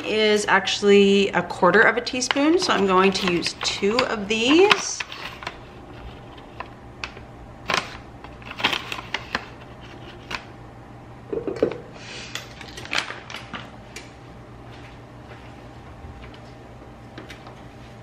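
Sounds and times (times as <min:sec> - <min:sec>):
packets rustling: 0:02.6 - 0:06.7, 0:07.6 - 0:10.5.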